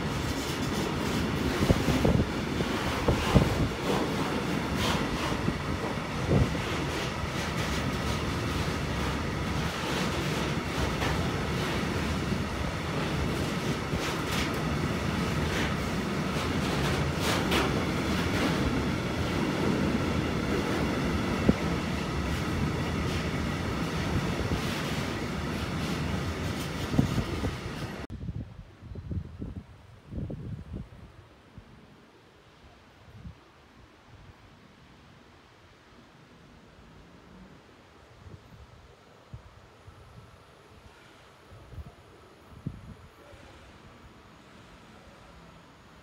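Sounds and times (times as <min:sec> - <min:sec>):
train wheels rumbling on rail: 0:00.0 - 0:28.1.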